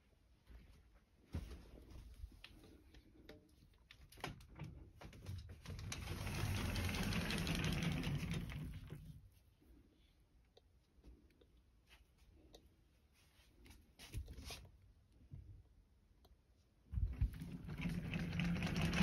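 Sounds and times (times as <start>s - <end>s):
sliding closet door on track: 4.4s - 9.2s, 17.0s - 19.0s.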